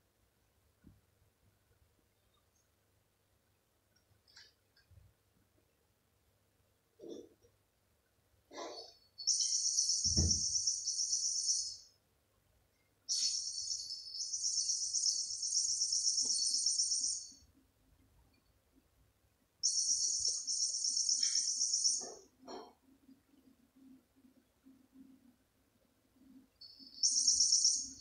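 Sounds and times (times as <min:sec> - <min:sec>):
high-pitched chirping trill: 0:09.2 - 0:11.9, 0:13.1 - 0:17.4, 0:19.6 - 0:22.2, 0:26.6 - 0:28.0.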